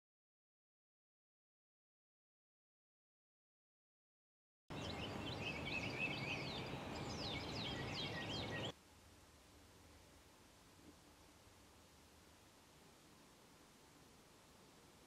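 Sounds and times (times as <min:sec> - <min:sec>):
small birds chirping: 0:04.7 - 0:08.8
steady background hiss: 0:04.7 - 0:15.0.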